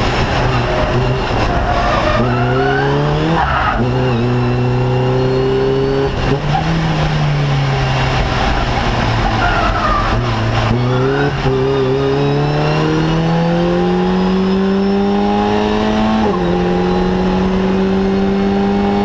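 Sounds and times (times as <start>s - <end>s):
race car engine accelerating: 0.0s - 19.0s.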